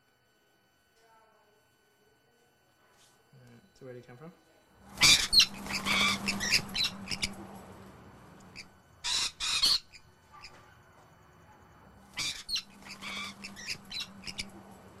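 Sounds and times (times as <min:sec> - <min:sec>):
soft bird chirps and chatter: 0:04.8 - 0:15.0
parrots screeching: 0:05.0 - 0:07.4, 0:08.5 - 0:10.6, 0:12.1 - 0:14.6.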